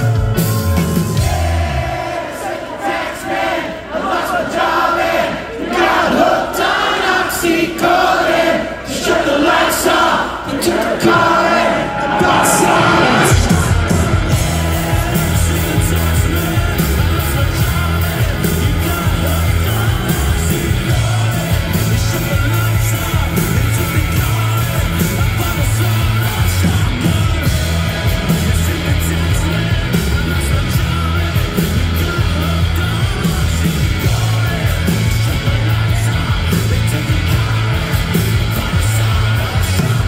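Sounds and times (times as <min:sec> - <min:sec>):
live rock band: 0:00.0 - 0:02.1, 0:10.5 - 0:40.0
person singing: 0:10.7 - 0:40.0.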